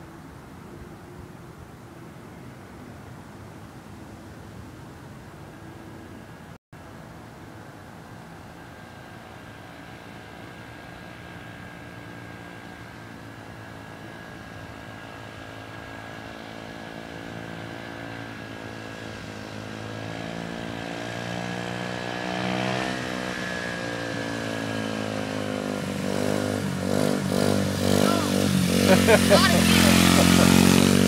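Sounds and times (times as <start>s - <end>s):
small motorbike engine revving: 9.8s - 31.0s.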